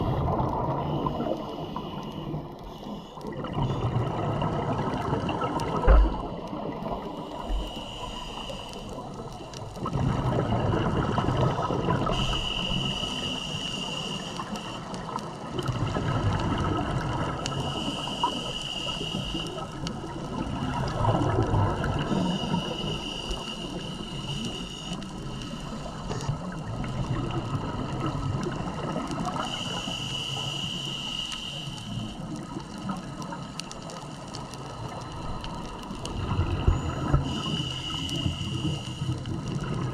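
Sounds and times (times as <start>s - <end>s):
regulator hissing inhale: 0.8s - 3.8s, 7.0s - 9.6s, 12.0s - 15.1s, 17.4s - 19.9s, 22.0s - 26.3s, 29.2s - 32.8s, 35.9s - 39.3s
exhaust bubbles: 3.3s - 6.9s, 9.8s - 12.2s, 20.0s - 22.2s.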